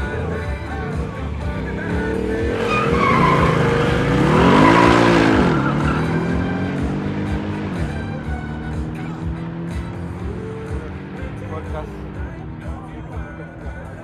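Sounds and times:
car engines revving: 0.0s - 14.0s
tyres squealing: 1.8s - 6.9s.

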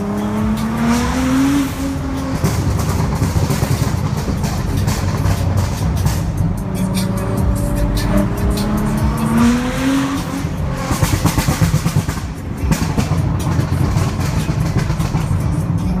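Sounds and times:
car engine revving: 0.0s - 16.0s
exhaust popping and crackling: 0.0s - 16.0s.

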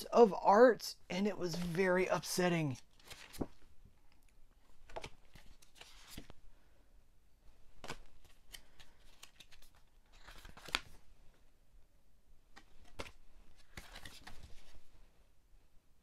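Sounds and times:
cards sliding and flicking: 2.8s - 3.6s, 4.8s - 6.4s, 7.8s - 11.0s, 12.5s - 14.8s.

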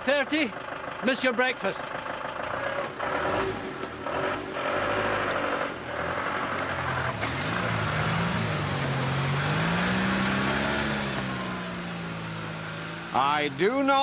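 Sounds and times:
minibus engine revving: 0.4s - 14.0s.

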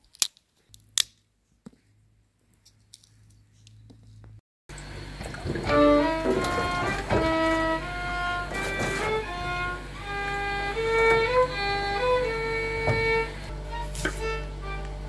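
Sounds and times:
steady low drone: 4.7s - 15.0s
slow melody of held notes: 5.7s - 15.0s.

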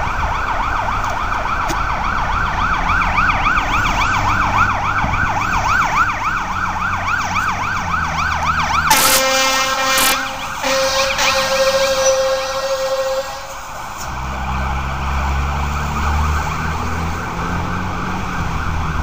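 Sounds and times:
fire engine siren yelping: 0.0s - 19.0s
long horn blasts: 8.9s - 13.8s.

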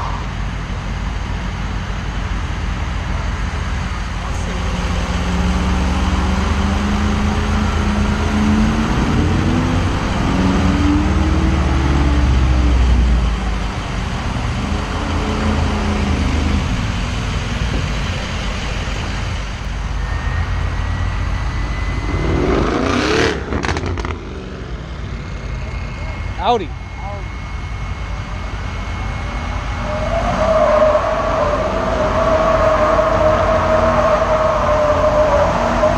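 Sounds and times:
sharp rush: 4.0s - 35.9s
engine revving: 4.1s - 35.9s
thin high tone: 18.1s - 23.5s, 25.1s - 33.3s.

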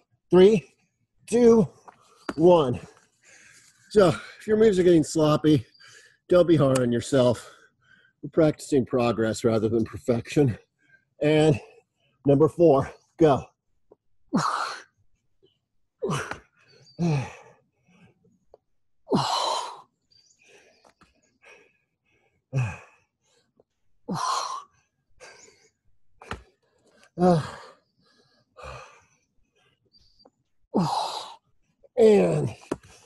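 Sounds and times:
man breathing hard: 3.1s - 4.4s, 7.4s - 8.2s, 16.0s - 18.2s, 19.1s - 31.6s
man grunting with effort: 32.0s - 32.8s.

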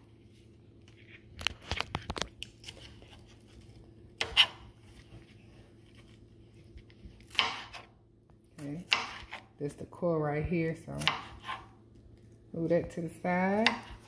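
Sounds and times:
knife cutting tomato: 2.0s - 4.8s, 7.1s - 7.9s, 8.6s - 9.5s, 10.9s - 11.8s, 13.6s - 14.0s.

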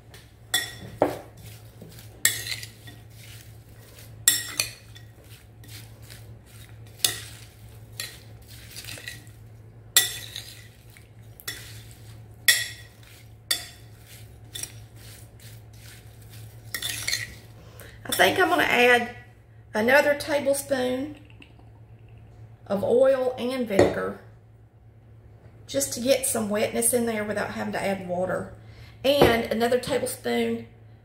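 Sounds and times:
steady low hum: 0.0s - 31.0s
spoon clinking on glass bowl: 0.5s - 1.2s, 4.2s - 5.1s, 10.0s - 10.8s, 12.5s - 14.8s
soft wet rustle: 1.3s - 4.2s, 12.9s - 17.6s.

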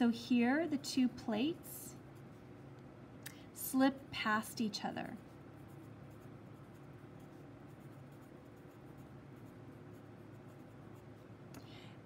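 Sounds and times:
faint low hum: 0.0s - 12.0s
pencil scratching on paper: 5.0s - 11.4s.

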